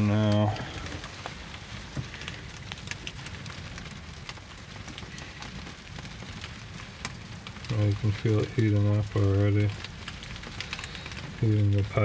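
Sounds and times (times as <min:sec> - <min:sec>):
wood stove crackling: 0:00.0 - 0:12.0.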